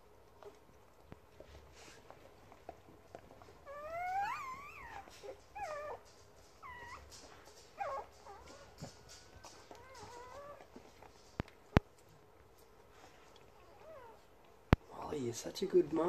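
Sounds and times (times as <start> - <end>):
puppies squealing and crying: 3.6 - 10.8.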